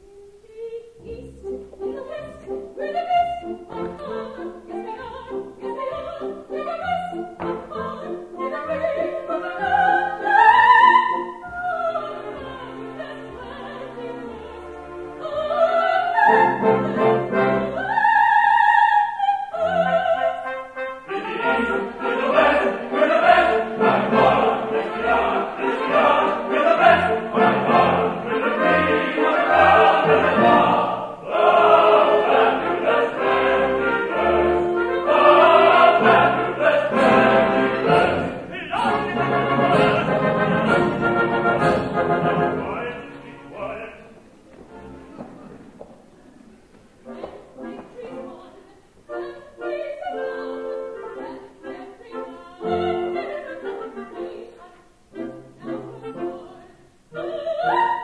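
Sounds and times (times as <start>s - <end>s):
soprano singing opera: 0.0s - 40.8s, 47.1s - 58.0s
orchestra playing: 20.5s - 45.6s.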